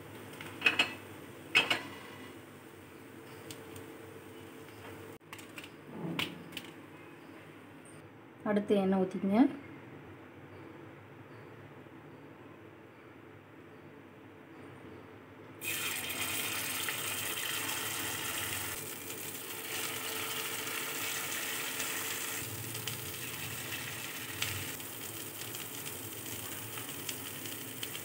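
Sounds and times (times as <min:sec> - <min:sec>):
batter sizzling in hot oil: 0:15.6 - 0:28.0.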